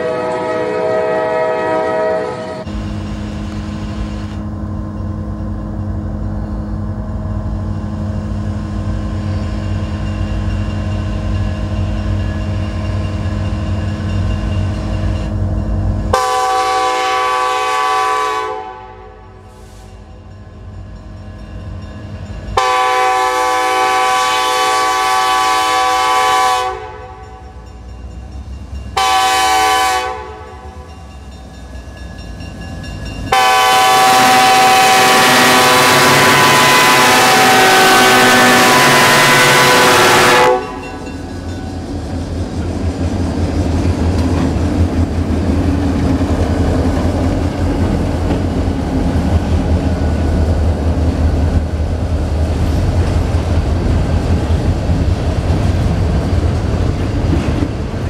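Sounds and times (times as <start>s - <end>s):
locomotive air horn blasts: 0.0s - 2.7s, 16.1s - 19.9s, 22.6s - 27.4s, 29.0s - 30.6s, 33.3s - 41.0s
low rumble of train: 0.0s - 58.0s.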